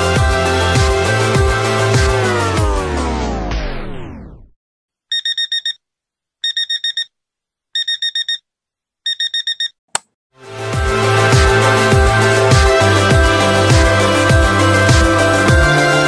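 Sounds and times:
electronic music slowing down: 1.2 - 4.5
digital alarm beeping: 5.1 - 5.8, 6.4 - 7.1, 7.8 - 8.4, 9.1 - 9.8
click: 9.5 - 10.1.

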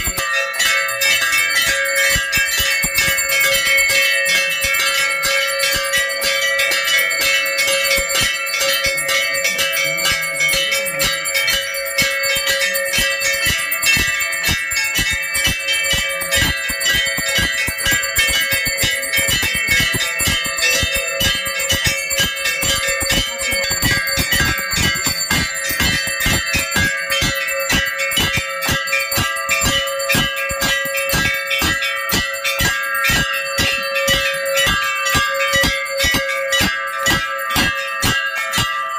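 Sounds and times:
temple bells rung rapidly: 0.0 - 38.9.

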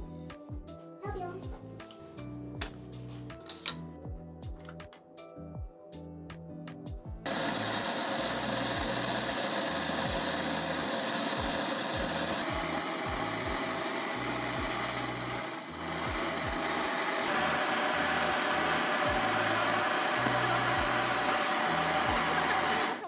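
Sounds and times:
gas torch flame roaring: 7.2 - 23.0.

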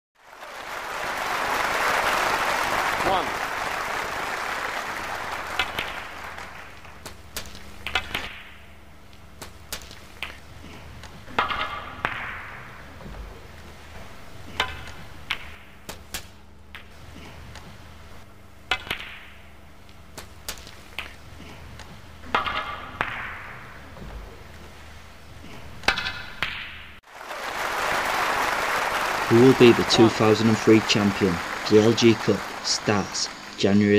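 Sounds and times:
applause: 0.2 - 7.2, 27.0 - 33.9
snooker balls clicking: 5.3 - 10.4.

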